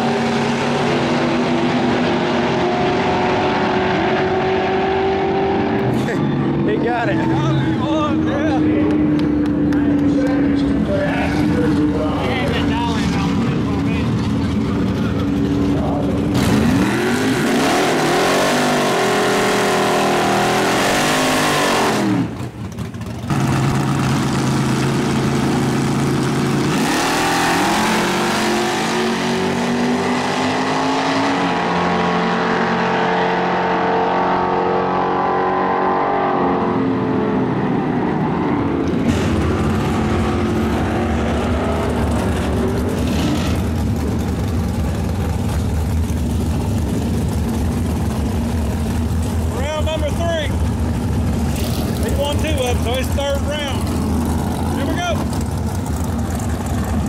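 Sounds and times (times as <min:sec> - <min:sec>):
racing car engines revving: 0:00.0 - 0:57.0.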